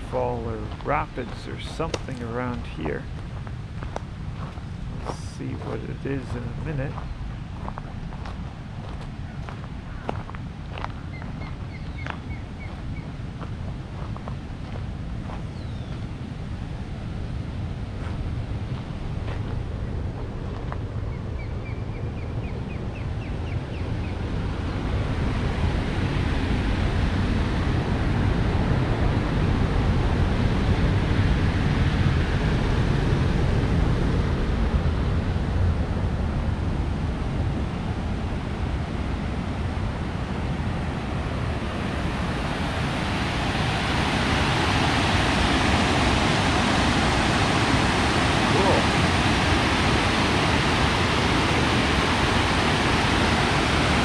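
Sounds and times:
wind buffeting microphone: 0:00.0 - 0:54.0
fast-flowing water rushing: 0:41.4 - 0:54.0.

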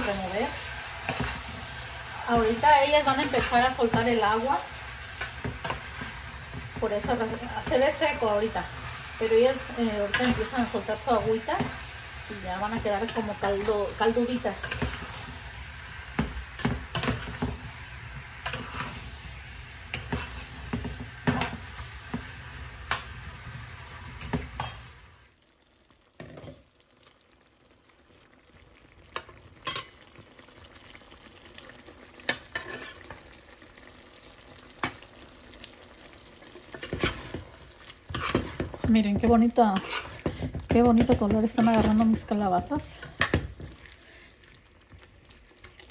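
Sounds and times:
spoon scraping a pan: 0:00.0 - 0:25.0, 0:32.3 - 0:33.2, 0:36.6 - 0:43.8
vegetables sizzling in frying pan: 0:00.0 - 0:45.9.

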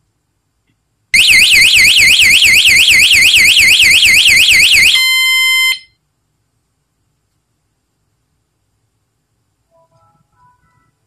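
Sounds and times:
steady alarm tone: 0:01.2 - 0:05.9
warbling alarm siren: 0:01.2 - 0:05.9.

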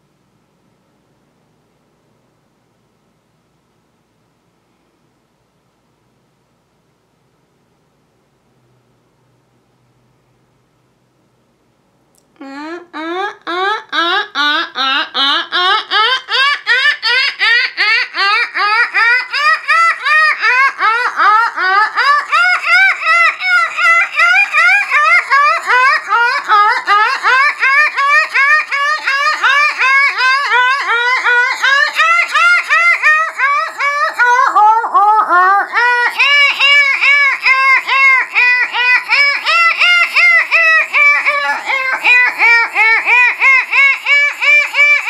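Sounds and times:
woman making dolphin-like chirps: 0:12.2 - 0:18.2.

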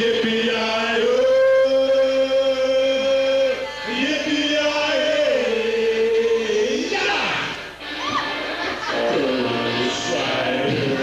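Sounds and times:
men singing in harmony: 0:08.8 - 0:11.0.

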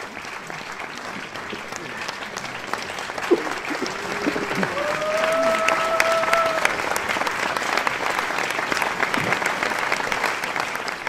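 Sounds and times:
audience clapping: 0:00.0 - 0:11.0
person cheering: 0:03.6 - 0:06.8.

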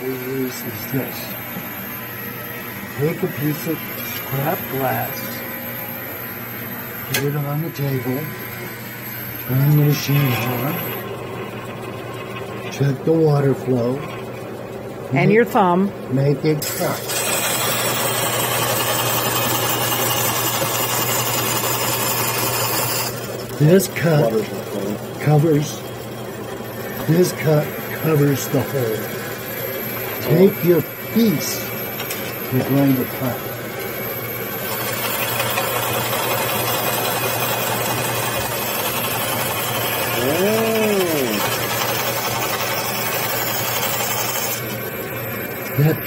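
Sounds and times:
motor hum: 0:00.0 - 0:46.0
bandsaw cutting glass: 0:16.6 - 0:24.5, 0:34.6 - 0:44.8.

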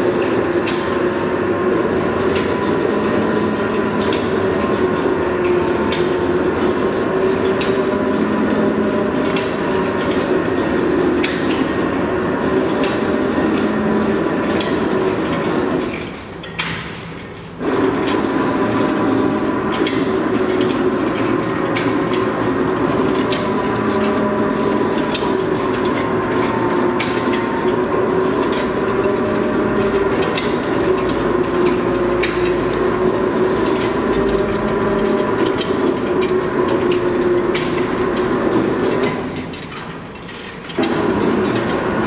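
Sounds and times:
machine reel humming: 0:00.0 - 0:42.0.

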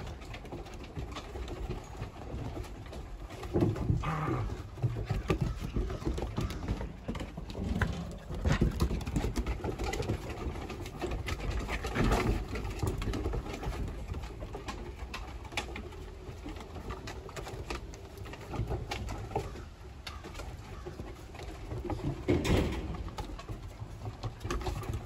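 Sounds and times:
claws clicking on wooden boards: 0:00.0 - 0:25.0
puppies growling: 0:00.0 - 0:25.0.

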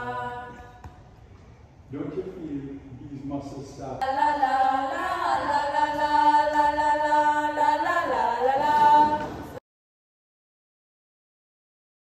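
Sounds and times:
women singing held notes: 0:00.0 - 0:00.9, 0:04.0 - 0:09.6.

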